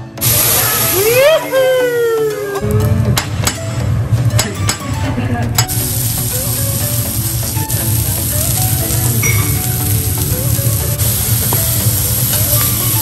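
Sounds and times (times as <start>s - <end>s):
food sizzling on griddle: 0.2s - 1.7s, 5.7s - 13.0s.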